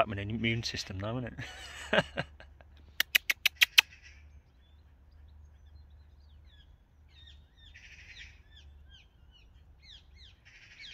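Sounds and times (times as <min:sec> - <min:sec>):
small birds chirping: 0:02.7 - 0:10.9
harsh bird caw: 0:03.6 - 0:04.4, 0:07.2 - 0:09.0, 0:09.8 - 0:10.9.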